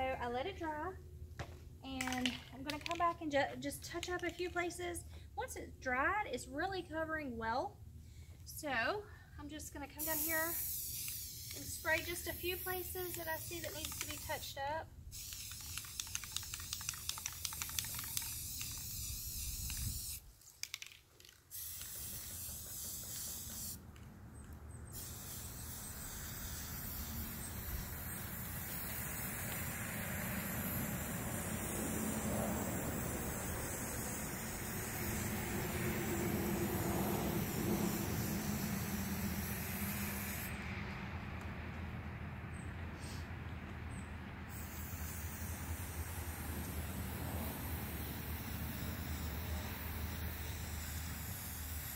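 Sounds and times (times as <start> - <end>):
spray can clicks: 2.0 - 3.2, 10.0 - 14.6, 15.2 - 24.0
aerosol spray can hissing: 10.0 - 23.8, 24.9 - 40.5, 44.5 - 51.9.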